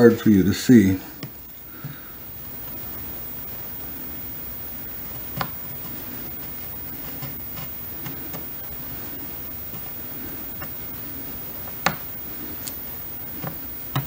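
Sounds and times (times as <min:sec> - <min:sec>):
steady hiss: 0:00.0 - 0:14.0
pencil scratching: 0:05.3 - 0:14.0.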